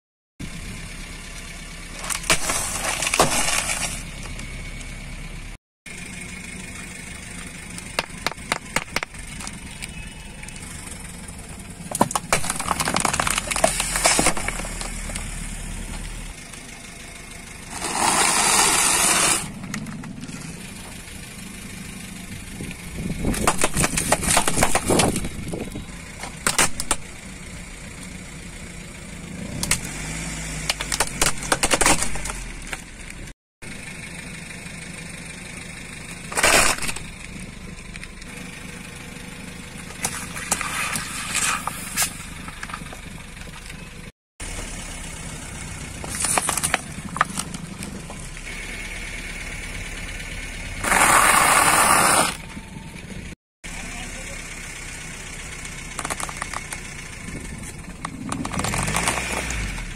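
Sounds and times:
car engine running: 0.4 - 59.9
breaking plastic snapping: 11.9 - 15.0, 23.3 - 25.3, 26.4 - 27.1, 30.7 - 32.8, 46.0 - 47.6
tyre crushing plastic crackling: 11.9 - 15.2, 46.0 - 48.1.

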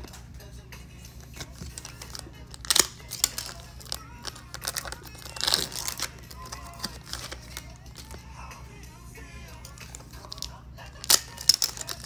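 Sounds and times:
foil wrapper crinkling: 1.3 - 8.2, 9.7 - 12.0
foil tearing: 1.4 - 8.2, 9.8 - 12.0.

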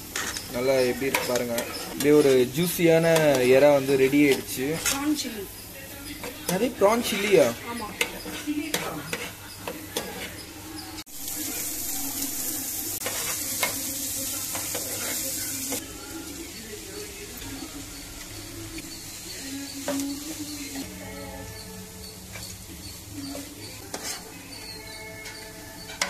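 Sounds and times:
onions sizzling in oil: 0.0 - 26.0.

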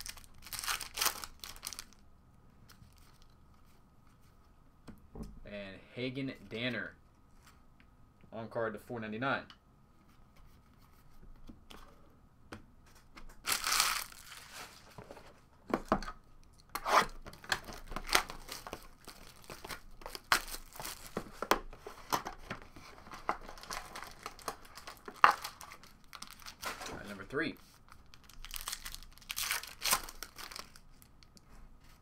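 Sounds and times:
foil wrapper crinkling: 0.0 - 2.0, 13.4 - 14.9, 17.6 - 21.2, 23.1 - 27.2, 27.9 - 31.3
foil wrapper tearing: 0.0 - 2.0, 13.4 - 14.6, 23.6 - 26.8, 28.2 - 30.8.

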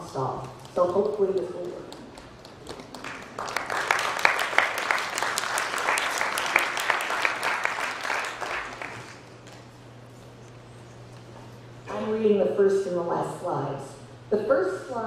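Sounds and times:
audience applauding: 1.9 - 9.6.

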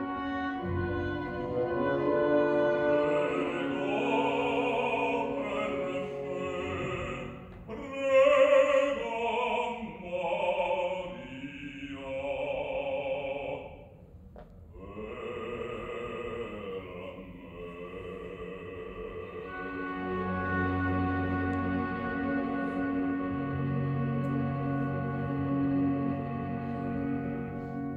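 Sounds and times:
chamber ensemble playing: 0.0 - 7.4, 19.2 - 27.9.

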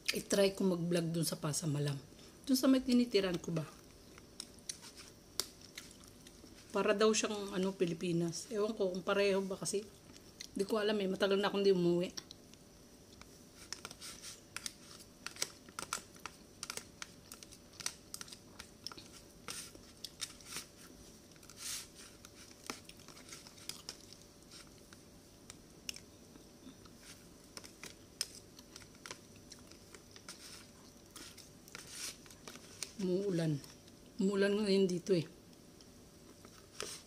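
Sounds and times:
chewing: 4.1 - 6.5, 22.2 - 24.9.

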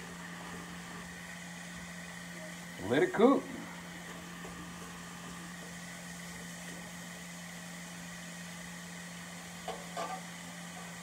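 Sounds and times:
low appliance hum: 0.0 - 11.0
vegetables sizzling in pan: 0.0 - 11.0.

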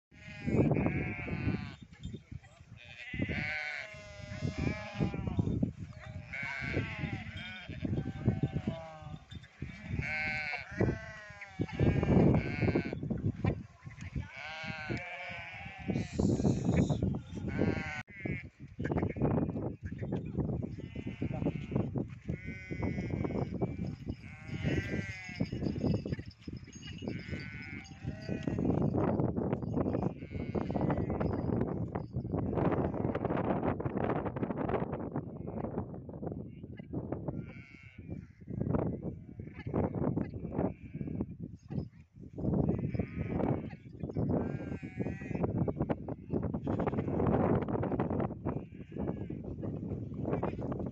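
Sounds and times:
sheep and goats bleating: 0.1 - 33.3, 37.3 - 41.3, 42.6 - 47.5, 48.4 - 50.8.

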